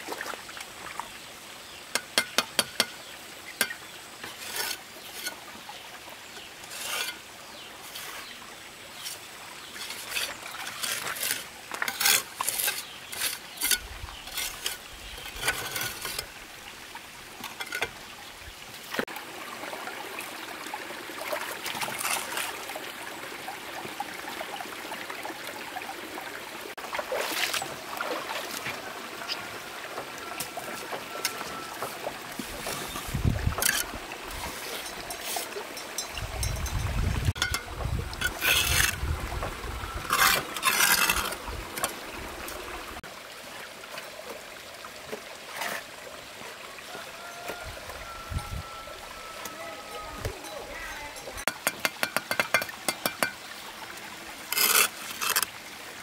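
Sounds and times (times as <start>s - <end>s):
trowel scraping mortar: 4.2s - 5.4s, 6.6s - 8.3s, 9.8s - 16.3s, 38.2s - 39.0s, 40.1s - 42.0s, 54.5s - 55.5s.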